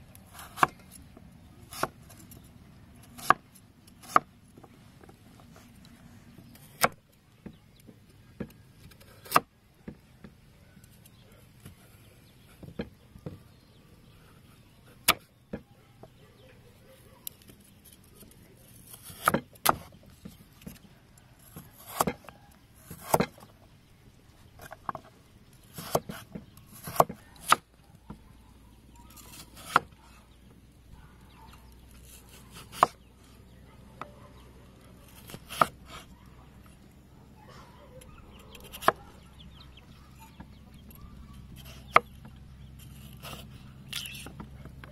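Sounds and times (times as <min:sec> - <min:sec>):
knife chopping on wooden block: 0:03.1 - 0:03.4, 0:19.0 - 0:19.9, 0:21.5 - 0:23.4, 0:25.8 - 0:28.2, 0:29.3 - 0:29.9, 0:32.2 - 0:33.0, 0:35.2 - 0:36.1.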